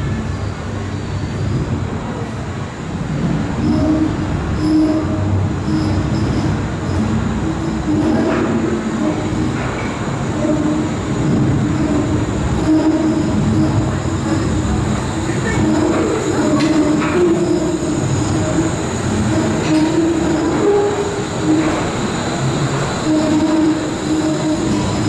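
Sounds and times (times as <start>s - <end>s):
suspended monorail car rumbling: 0.0s - 25.0s
wavering squeal-like tones: 11.7s - 25.0s.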